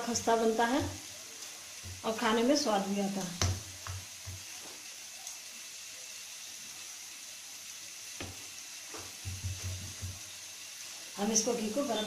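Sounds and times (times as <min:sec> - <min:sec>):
steady faint hiss: 0:00.0 - 0:12.0.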